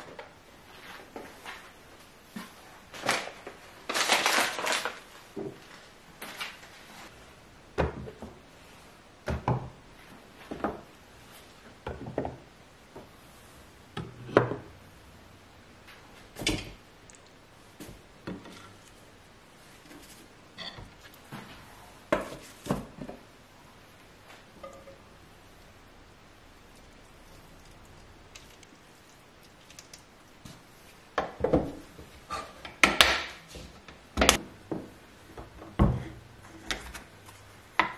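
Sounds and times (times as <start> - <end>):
packaging rustling: 3.0 - 6.8.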